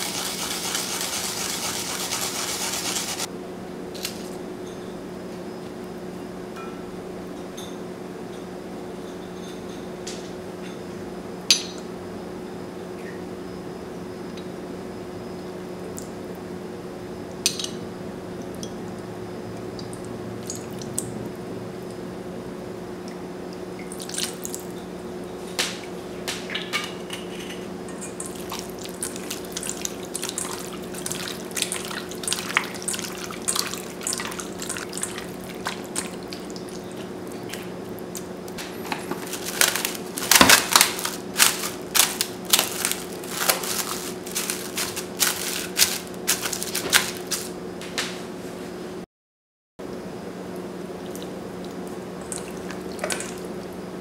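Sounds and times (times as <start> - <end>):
steady low hum: 10.4 - 49.0
plastic wrap crinkling: 38.6 - 47.6.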